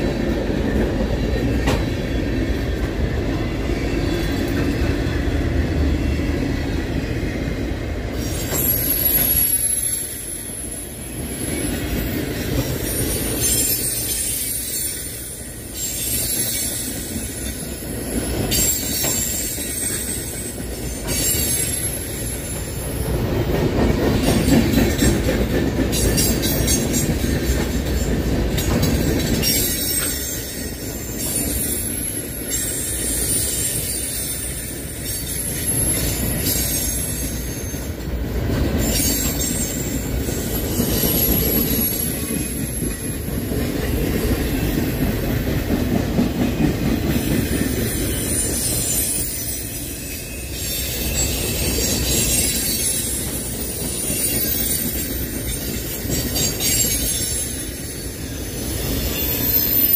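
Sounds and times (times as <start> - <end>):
steel wheels rumbling on rail: 0.0 - 59.9
high wheel squeal: 8.2 - 22.7, 47.6 - 59.9
clatter over rail joints: 23.3 - 30.6.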